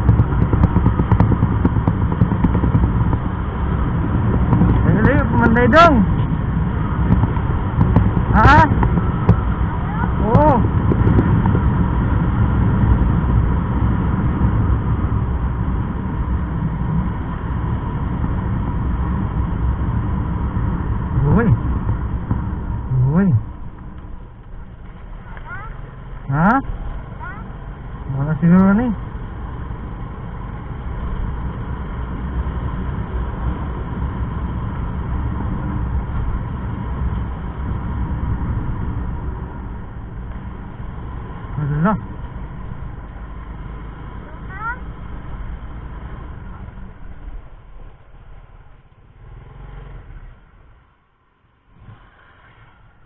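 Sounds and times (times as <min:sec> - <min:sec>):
wind buffeting microphone: 0:00.0 - 0:26.1
motorcycle engine and road noise: 0:00.0 - 0:53.0.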